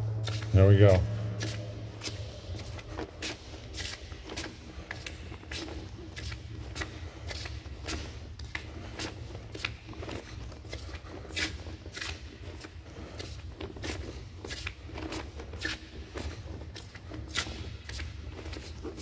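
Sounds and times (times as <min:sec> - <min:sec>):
steady low rumble: 0:00.0 - 0:09.9
footsteps scuffing in tunnel: 0:00.0 - 0:19.0.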